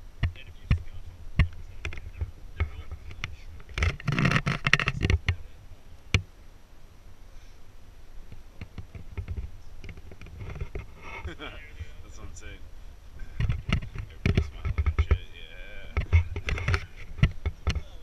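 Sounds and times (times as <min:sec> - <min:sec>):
rustling: 0:00.0 - 0:18.0
sharp clicks and knocks: 0:00.2 - 0:05.4, 0:08.3 - 0:11.4, 0:13.2 - 0:18.0.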